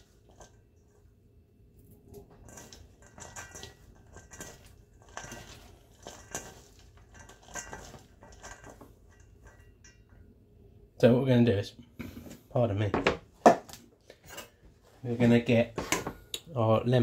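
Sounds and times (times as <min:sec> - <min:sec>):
rustling shredded vegetables: 0:00.0 - 0:01.2, 0:01.8 - 0:09.8.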